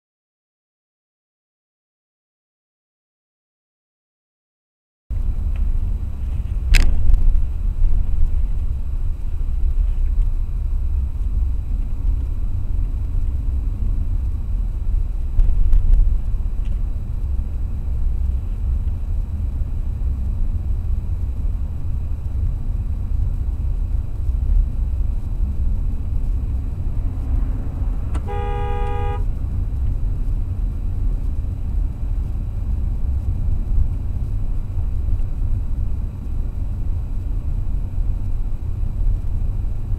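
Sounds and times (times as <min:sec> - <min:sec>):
car road and engine rumble: 0:05.1 - 0:39.9
car horn blast: 0:27.5 - 0:29.4.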